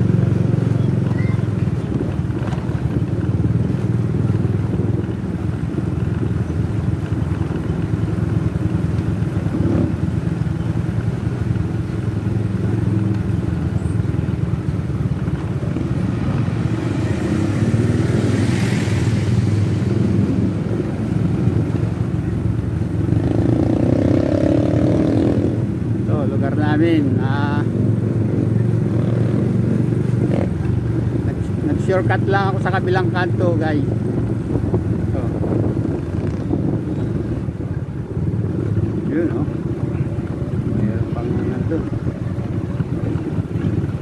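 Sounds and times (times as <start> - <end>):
motorcycle engine running: 0.0 - 44.0.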